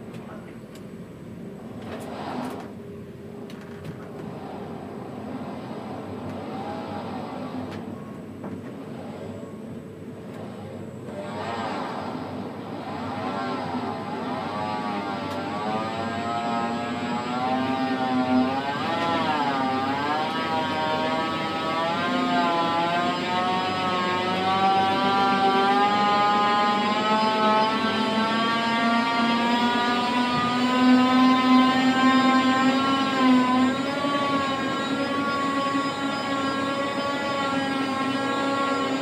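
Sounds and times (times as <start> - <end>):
crane electric motor whining: 4.3 - 8.0, 10.2 - 39.0.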